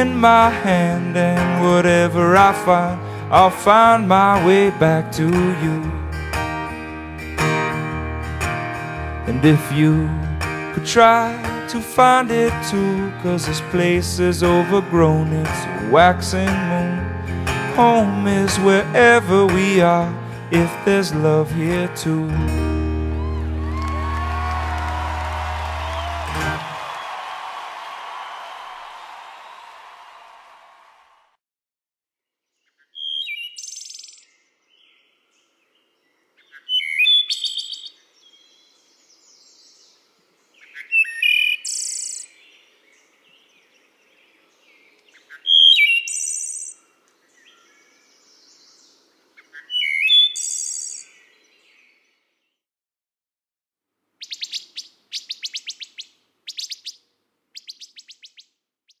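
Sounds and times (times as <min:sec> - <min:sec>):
songbird singing: 0:32.6 - 0:52.6, 0:54.2 - 0:59.0.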